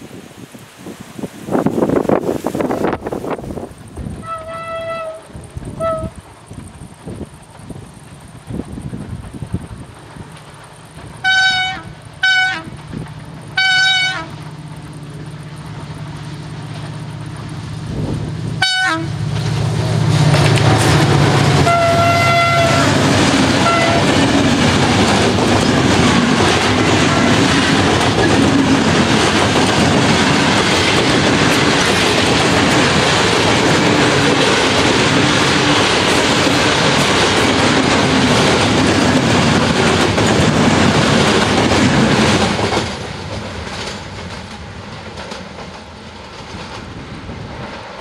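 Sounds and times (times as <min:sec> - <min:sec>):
train wheels rumbling on rails: 0:00.0 - 0:48.0
clicking over rail joints: 0:03.3 - 0:17.8, 0:19.3 - 0:48.0
locomotive horn blasts: 0:04.2 - 0:06.2, 0:11.2 - 0:12.7, 0:13.6 - 0:14.4, 0:18.6 - 0:19.2, 0:21.4 - 0:24.2.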